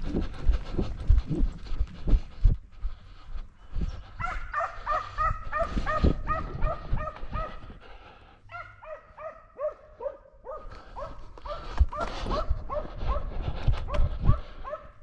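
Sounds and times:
dog barking: 4.2s - 7.7s, 8.5s - 13.3s, 13.9s - 15.0s.

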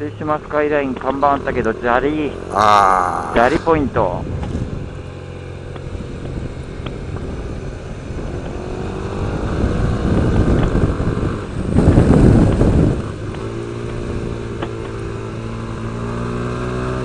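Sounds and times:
road noise: 0.0s - 17.0s
wind noise: 3.3s - 5.0s, 5.8s - 14.4s.

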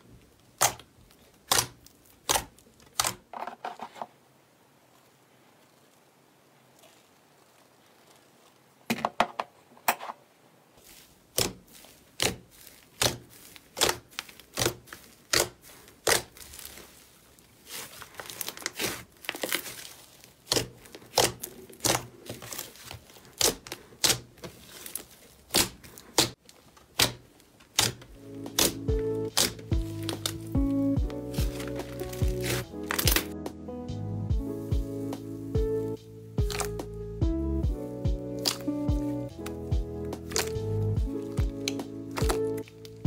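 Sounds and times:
slime popping: 36.4s - 36.9s, 38.4s - 43.0s.

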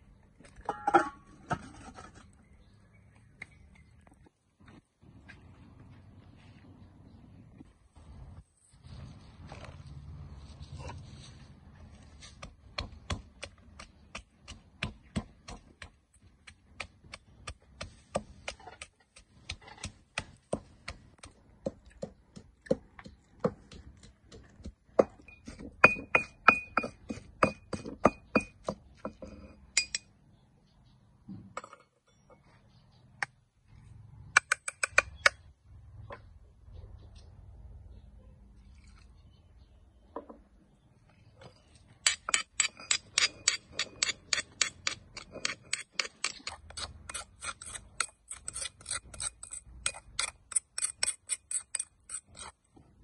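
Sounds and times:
pestle pounding in stone mortar: 12.4s - 29.2s, 42.0s - 52.5s.

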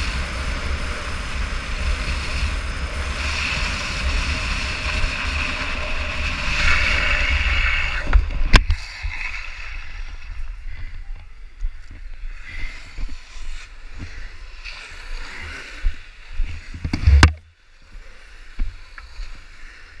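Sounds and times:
wheels rumbling on asphalt: 0.0s - 9.1s
wind rushing over microphone: 0.0s - 17.4s.

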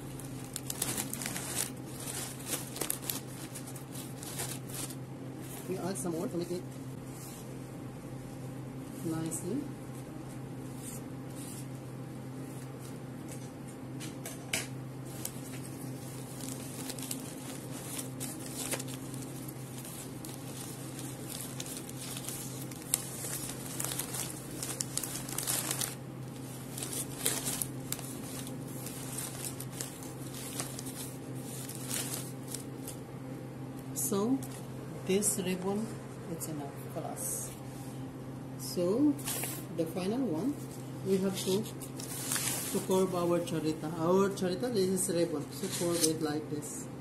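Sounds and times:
wrapping paper rustling: 0.0s - 7.4s, 15.0s - 33.0s, 40.4s - 44.1s.

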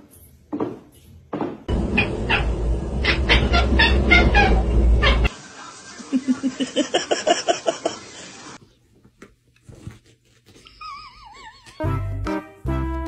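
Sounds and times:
deep rumble: 1.7s - 5.3s
cat crying: 1.9s - 5.3s.

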